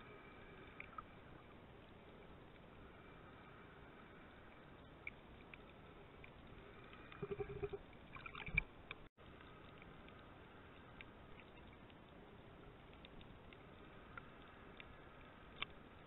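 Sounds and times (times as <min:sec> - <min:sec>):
faint underwater hiss: 0:00.0 - 0:08.6, 0:09.2 - 0:16.0
knocks and swishes of swimming: 0:00.0 - 0:16.0
small clicks and crackles: 0:00.0 - 0:16.0.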